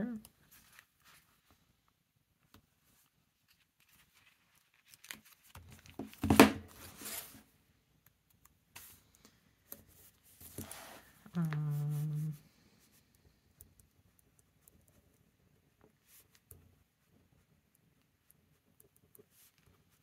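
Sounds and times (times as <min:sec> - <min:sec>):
paper rustling and sliding: 0:03.0 - 0:07.5.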